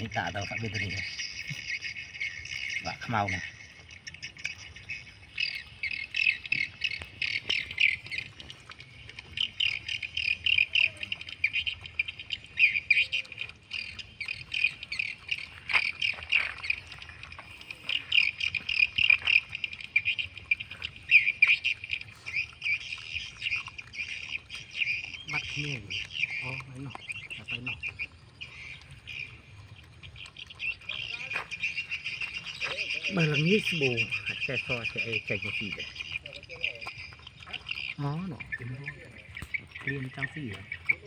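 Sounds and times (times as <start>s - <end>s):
birds chirping and squawking: 0.0s - 41.0s
dog eating off plastic plate: 0.0s - 41.0s.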